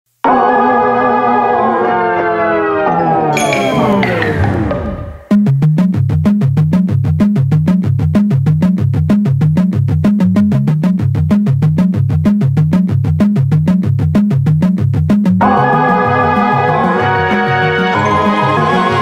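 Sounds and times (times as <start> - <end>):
synthesizer bass line: 3.1 - 5.5
fast steady beat: 3.4 - 17.0.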